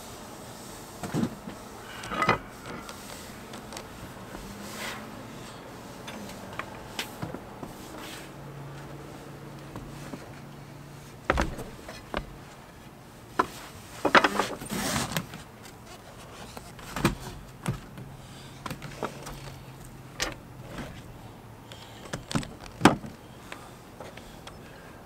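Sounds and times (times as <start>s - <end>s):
knocks and clunks on boat deck: 11.2s - 12.4s.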